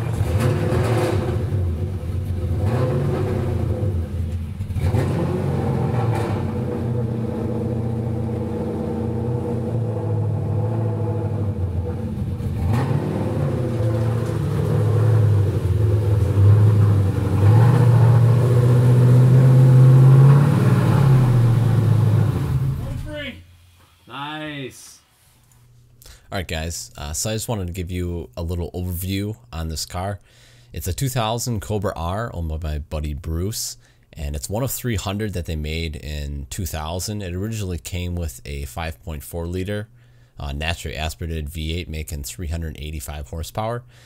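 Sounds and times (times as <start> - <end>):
car engine rumbling at low revs: 0.0 - 23.2.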